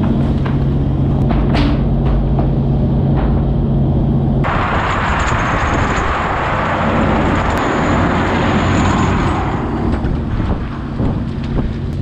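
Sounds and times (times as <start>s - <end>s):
churning sea: 0.0s - 12.0s
low hum of ship engine: 0.0s - 12.0s
wind rushing: 3.4s - 11.9s.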